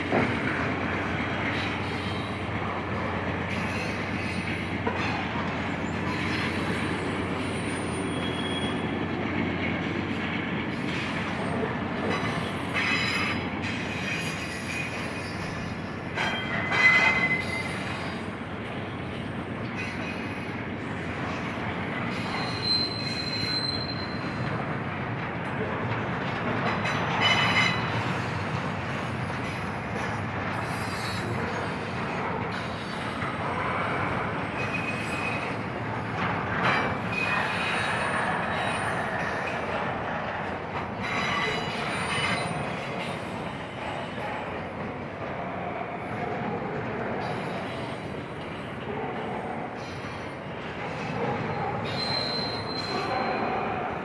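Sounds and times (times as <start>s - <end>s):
freight train wheels rumbling: 0.0s - 54.0s
high-pitched wheel squeals: 6.1s - 9.0s, 12.1s - 18.1s, 22.1s - 24.4s, 34.5s - 35.6s, 51.8s - 53.2s.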